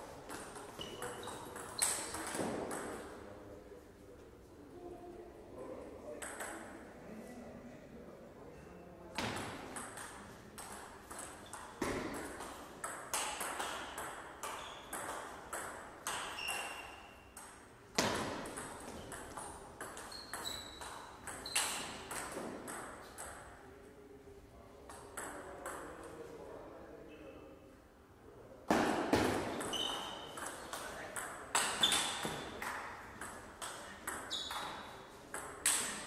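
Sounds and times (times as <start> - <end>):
table tennis ball hits and bounces: 0.2 - 3.2, 6.2 - 6.7, 9.2 - 23.6, 24.9 - 26.1, 28.7 - 36.0.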